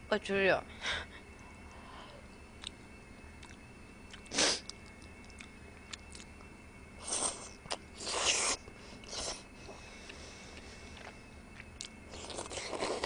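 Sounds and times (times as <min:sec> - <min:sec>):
noodle slurping: 0:12.1 - 0:13.0.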